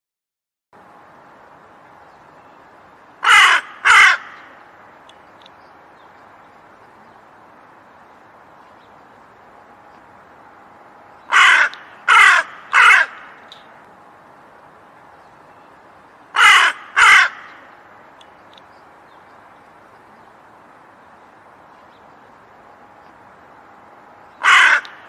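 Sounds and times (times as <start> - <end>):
crow cawing: 3.2 - 4.5, 11.3 - 13.4, 16.3 - 17.7, 24.4 - 25.0.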